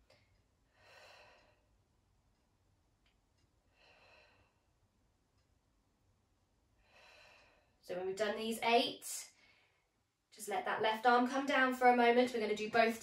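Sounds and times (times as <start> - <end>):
woman breathing softly: 0.1 - 1.8, 3.7 - 4.8, 6.8 - 7.8.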